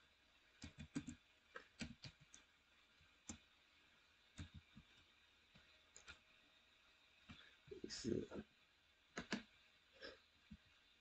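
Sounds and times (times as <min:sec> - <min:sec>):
keyboard keystrokes: 0:09.2 - 0:09.4.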